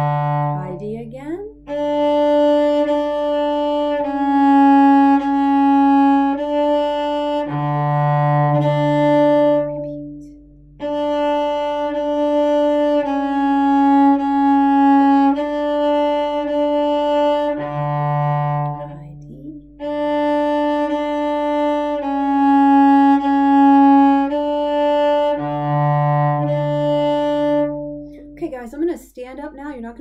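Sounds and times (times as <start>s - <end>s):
cello bowed notes: 0.0s - 28.9s.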